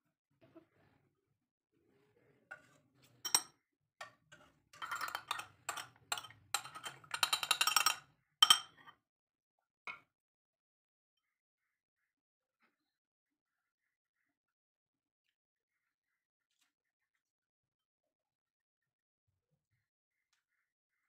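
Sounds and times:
spoon clinking against ceramic bowl: 0:03.3 - 0:03.5, 0:04.8 - 0:08.8.

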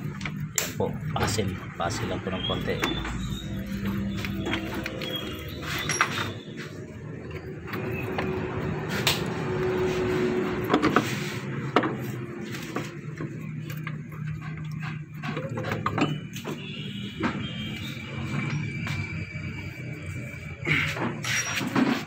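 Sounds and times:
metal tools knocking and clinking: 0:02.6 - 0:06.4.

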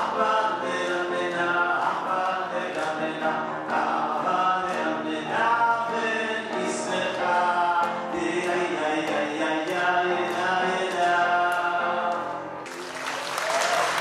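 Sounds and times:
man singing into a microphone: 0:00.0 - 0:12.5
grand piano: 0:00.0 - 0:14.0.

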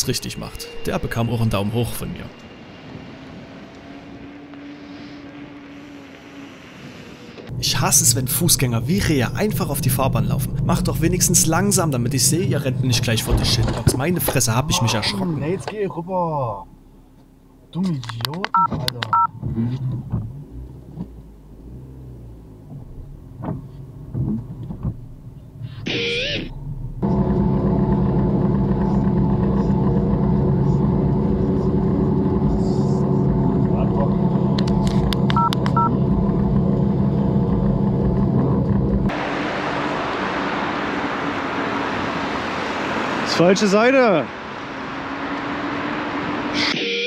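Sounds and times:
tyres on wet street: 0:00.0 - 0:47.0
car engine at low revs: 0:02.1 - 0:46.7
bicycle tyres hissing on wet road: 0:04.4 - 0:07.4.

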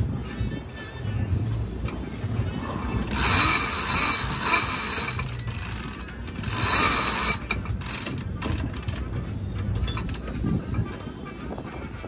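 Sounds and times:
winch ratchet clicking: 0:03.0 - 0:10.4.

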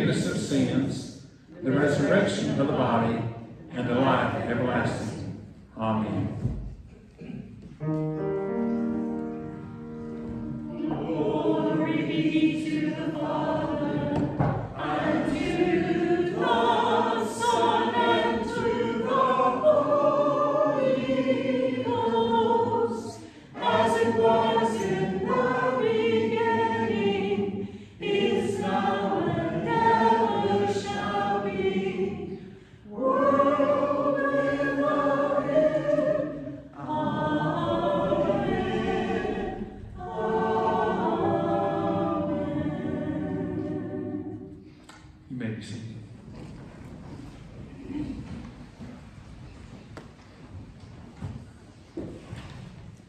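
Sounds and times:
choir singing: 0:00.0 - 0:05.4, 0:08.6 - 0:44.8.

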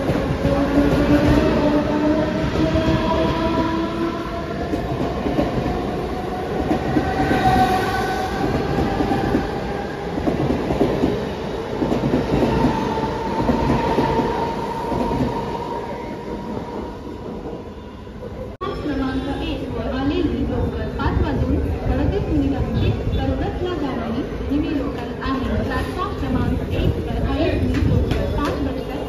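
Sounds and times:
train wheels clattering on rails: 0:27.6 - 0:29.0.

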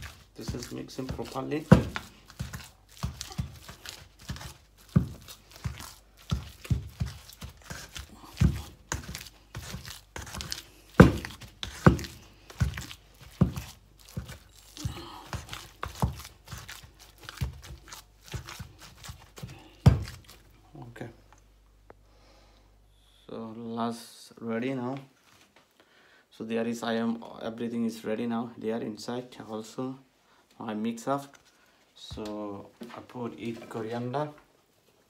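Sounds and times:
squelching and soft thumps: 0:00.0 - 0:20.6
hand kneading mixture in metal bowl: 0:00.0 - 0:21.5, 0:30.6 - 0:34.4.

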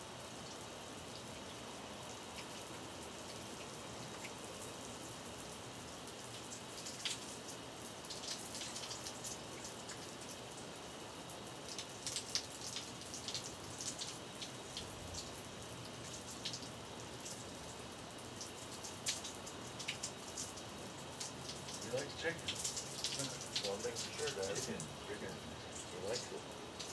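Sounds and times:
sharp drip ticks: 0:00.4 - 0:26.9
running water spattering: 0:06.1 - 0:10.7, 0:11.3 - 0:26.9.

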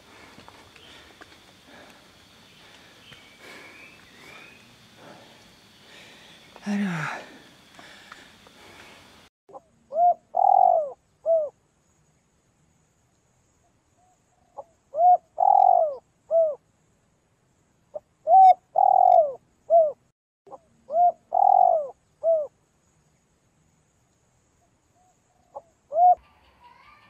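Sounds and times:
dove cooing: 0:09.9 - 0:11.5, 0:14.6 - 0:16.6, 0:18.2 - 0:20.0, 0:20.9 - 0:22.5, 0:25.6 - 0:26.9.

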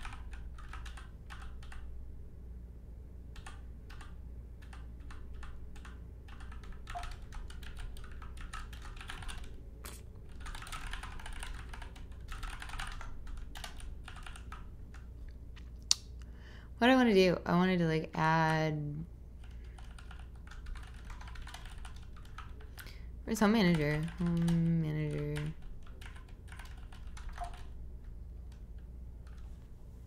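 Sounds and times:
typing on computer keyboard: 0:00.0 - 0:01.9, 0:03.3 - 0:09.6, 0:10.3 - 0:15.1, 0:19.4 - 0:27.8.

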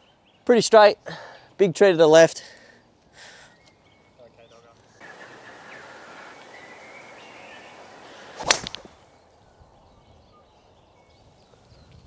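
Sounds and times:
golf club striking ball: 0:05.1 - 0:09.0.

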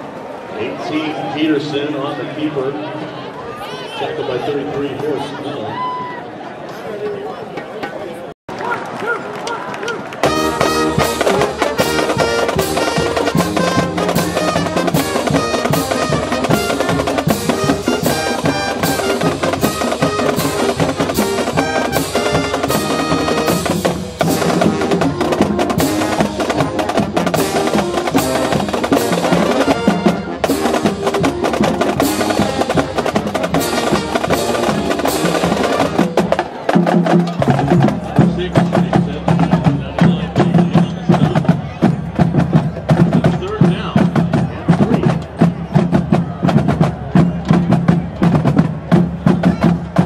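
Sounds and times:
wind instruments playing tune: 0:09.9 - 0:43.9
snare drums beating: 0:10.2 - 0:50.0.

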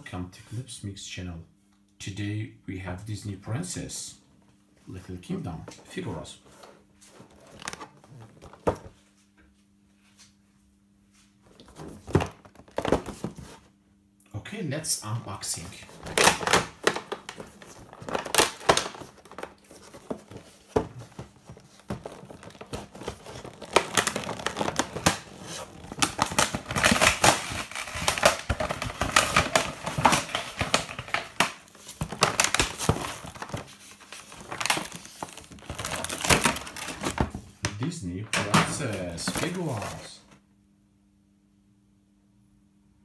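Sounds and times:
plastic packaging crinkling: 0:07.2 - 0:08.9, 0:11.5 - 0:13.6, 0:15.4 - 0:37.5, 0:38.5 - 0:40.2
packaging tearing: 0:15.9 - 0:20.4, 0:21.5 - 0:37.3.

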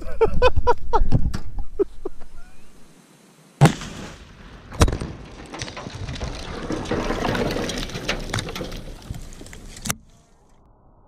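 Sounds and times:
sharp bang: 0:03.6 - 0:05.2
explosive blast: 0:03.6 - 0:05.5.

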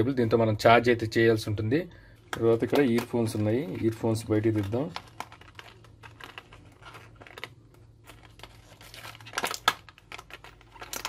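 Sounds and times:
plastic packaging crackling: 0:02.3 - 0:11.0.

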